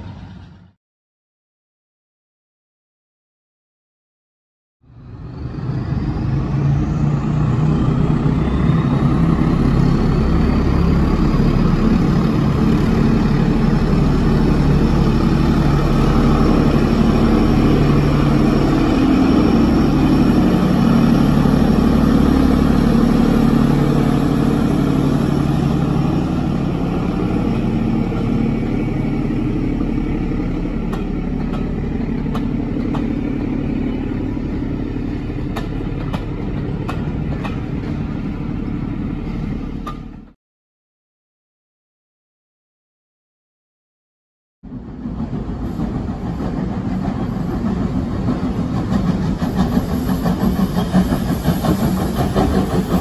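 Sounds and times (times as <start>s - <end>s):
diesel locomotive engine working hard: 0.0s - 0.8s, 4.8s - 40.4s, 44.6s - 53.0s
train wheels clicking over rail joints: 29.7s - 40.3s, 44.9s - 53.0s.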